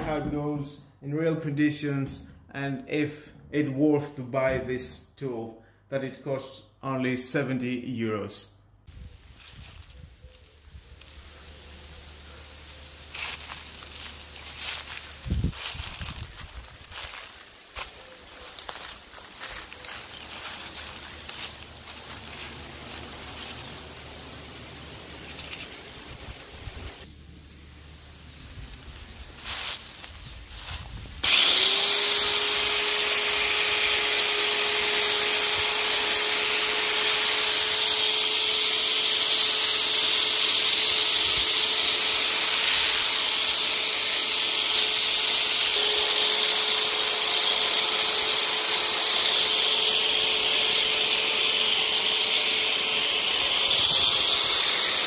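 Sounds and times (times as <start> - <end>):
electric hedge trimmer running: 11.0 - 16.2, 18.7 - 27.1, 31.2 - 55.0.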